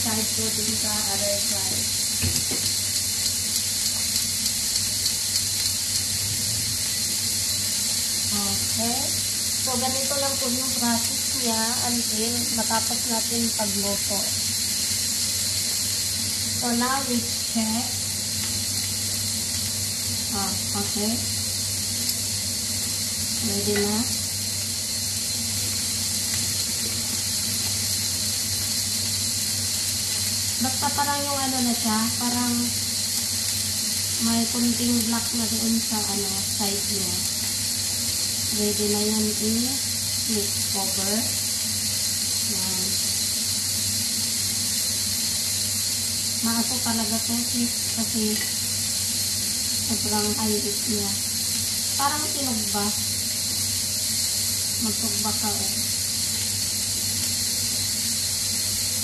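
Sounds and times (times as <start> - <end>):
broccoli sizzling in hot oil: 0.0 - 59.0
small sharp ticks: 2.9 - 6.1.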